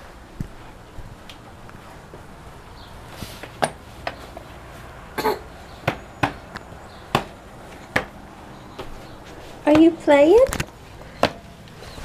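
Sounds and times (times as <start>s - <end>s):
baby coughing: 5.2s - 5.5s.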